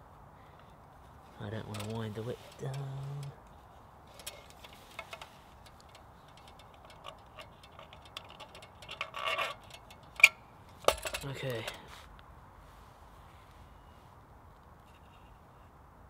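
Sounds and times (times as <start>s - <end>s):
lantern metal clicks and rattles: 0.6s - 12.2s.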